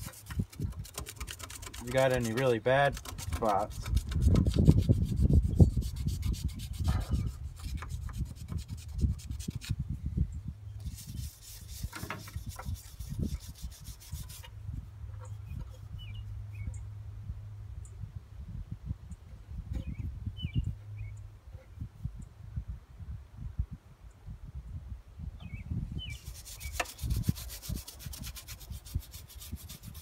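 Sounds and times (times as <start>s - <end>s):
brush scrubbing metal: 0.0s - 9.8s, 10.8s - 16.0s, 26.1s - 30.0s.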